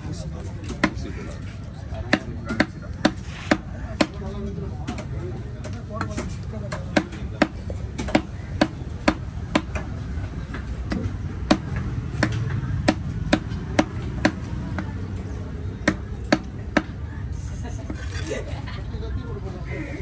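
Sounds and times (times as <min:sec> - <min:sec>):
knife chopping on wooden block: 0:02.1 - 0:04.2, 0:04.9 - 0:09.9, 0:10.6 - 0:14.9.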